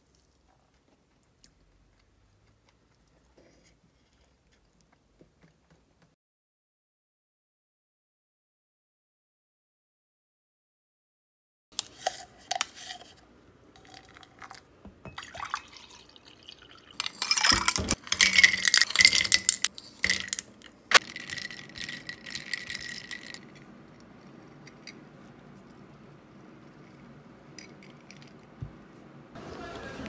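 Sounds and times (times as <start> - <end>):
ice clinking in glass: 13.8 - 20.4
liquid pouring over ice: 15.2 - 19.6.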